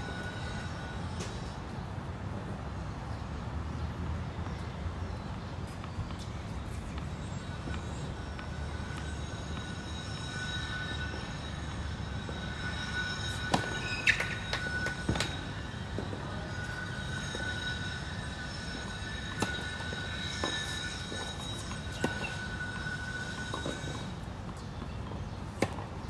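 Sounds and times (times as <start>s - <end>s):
faint high whine: 0.0s - 1.9s, 5.0s - 25.8s
shoe squeak: 5.1s - 25.4s.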